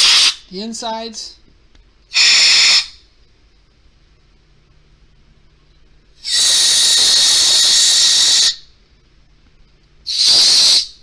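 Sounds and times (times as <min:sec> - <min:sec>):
aerosol spray hissing: 0:10.1 - 0:11.0.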